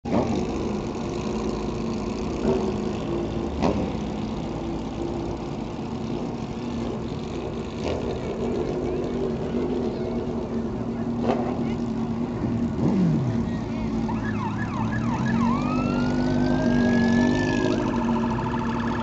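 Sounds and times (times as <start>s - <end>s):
motorcycle engines passing: 0.1s - 19.0s.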